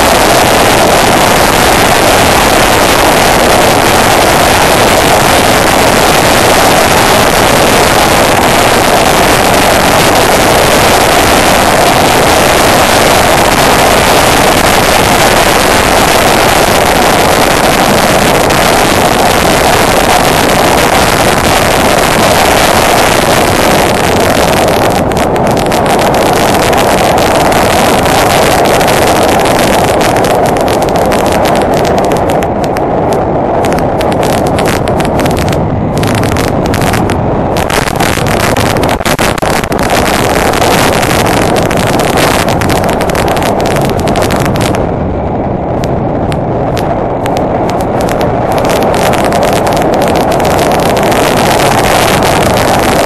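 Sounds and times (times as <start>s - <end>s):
motorcycle engine drone: 0.0s - 53.0s
wind and road noise: 0.0s - 53.0s.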